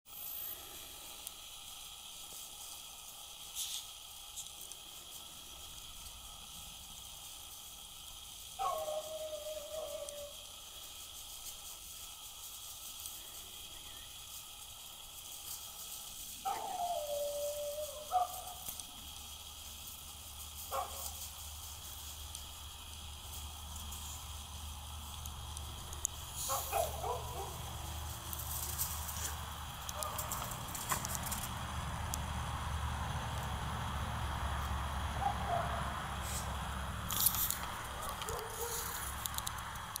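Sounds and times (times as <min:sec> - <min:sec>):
footsteps in snow and leaves: 0:08.6 - 0:10.3, 0:15.3 - 0:22.6, 0:26.3 - 0:31.6, 0:37.1 - 0:39.2
dog calling: 0:08.6 - 0:10.4, 0:16.4 - 0:18.7, 0:26.4 - 0:27.9, 0:35.2 - 0:35.9, 0:38.0 - 0:38.9.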